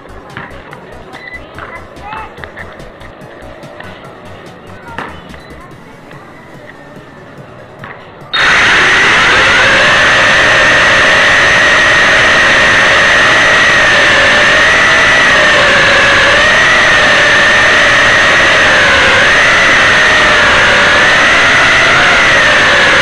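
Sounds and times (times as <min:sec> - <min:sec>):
drone propellers whining: 0:08.3 - 0:23.0.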